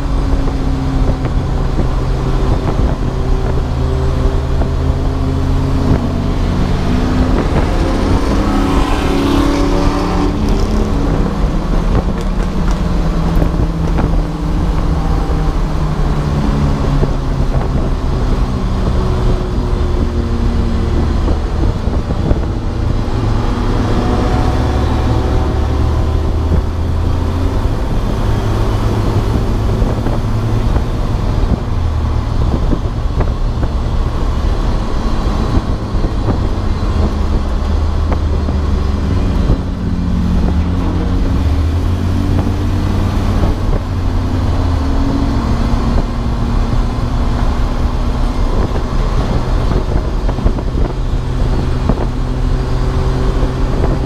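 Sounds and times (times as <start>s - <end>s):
race car engine revving: 0.0s - 54.0s
road and wind noise: 0.0s - 54.0s.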